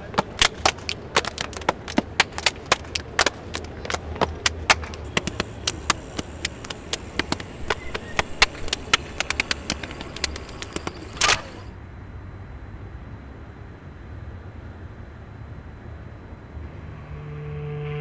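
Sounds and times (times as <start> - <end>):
steps on stone paving: 0.0 - 11.7
hands clapping: 0.1 - 11.7.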